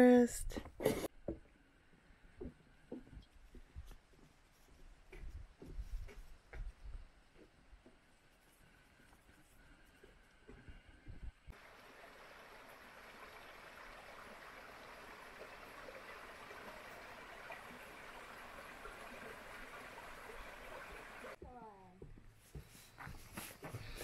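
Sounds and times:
creek babbling over stones: 0:11.5 - 0:21.4.

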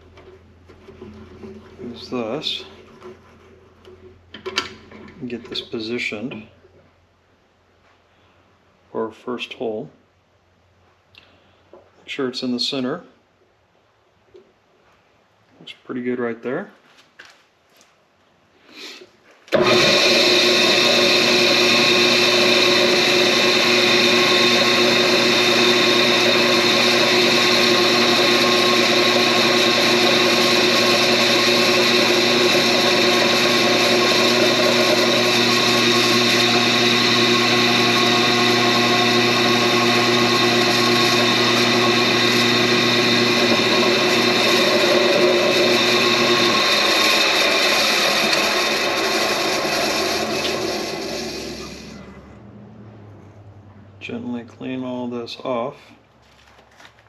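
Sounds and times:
drill press motor humming: 0:19.5 - 0:52.4.

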